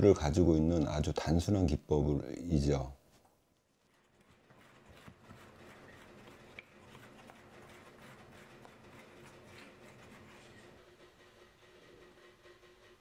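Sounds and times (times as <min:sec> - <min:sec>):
metal tool scraping clay: 0:03.9 - 0:13.0.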